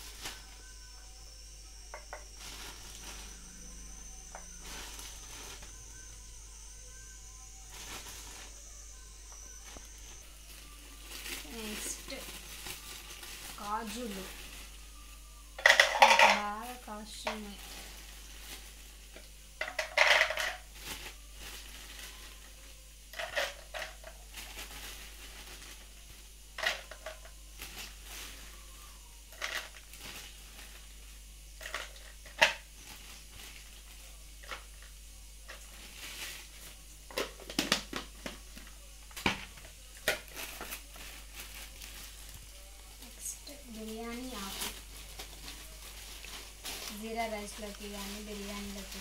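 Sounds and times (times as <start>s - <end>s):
plastic bag crinkling: 1.9s - 6.2s, 6.9s - 28.7s, 29.3s - 49.0s.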